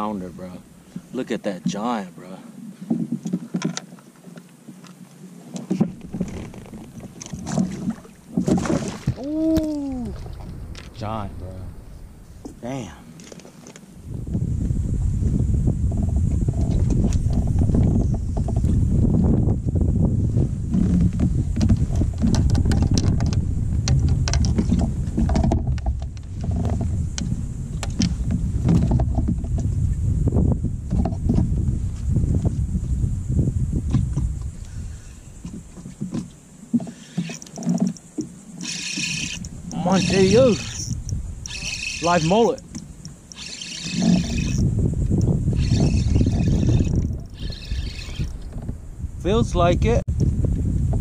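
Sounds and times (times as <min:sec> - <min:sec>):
fishing gear knocks and clicks: 0:02.9 - 0:04.0, 0:04.8 - 0:09.7, 0:13.2 - 0:13.9, 0:20.8 - 0:29.7, 0:35.4 - 0:44.6
wind noise on microphone: 0:05.3 - 0:51.0
low rumble: 0:09.1 - 0:13.1
fishing reel clicks: 0:38.6 - 0:42.6, 0:43.3 - 0:44.6, 0:45.6 - 0:48.4.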